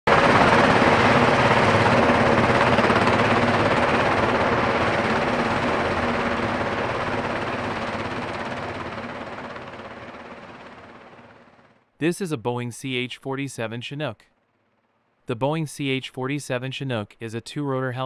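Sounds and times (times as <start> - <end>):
helicopter rotors chopping: 0.1 - 14.7.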